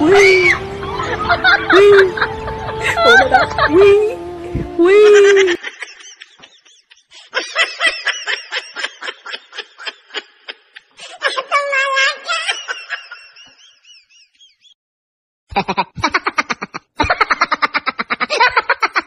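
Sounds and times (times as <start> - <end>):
high-pitched snickering laughter: 15.5 - 19.0.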